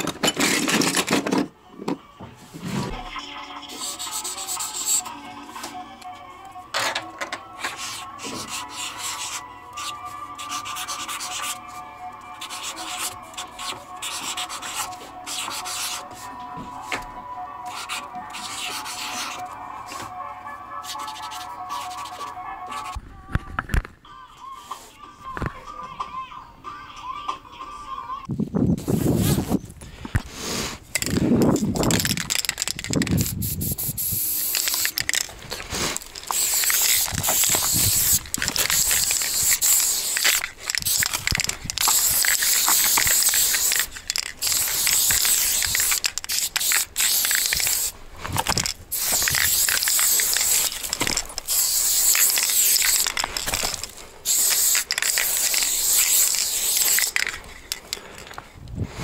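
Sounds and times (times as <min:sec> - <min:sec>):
spray paint can hissing: 0:03.6 - 0:05.1, 0:12.4 - 0:16.0, 0:28.8 - 0:29.6, 0:30.4 - 0:57.8.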